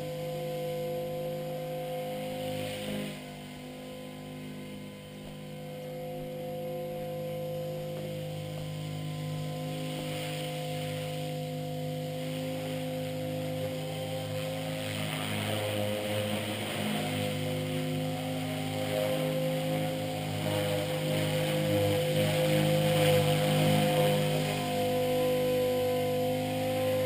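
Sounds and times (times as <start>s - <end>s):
model helicopter rotor hum: 0.0s - 27.0s.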